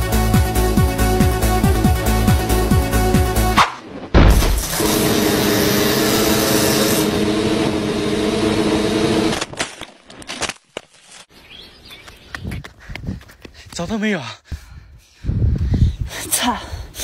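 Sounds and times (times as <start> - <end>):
drone propellers buzzing: 4.2 - 9.4.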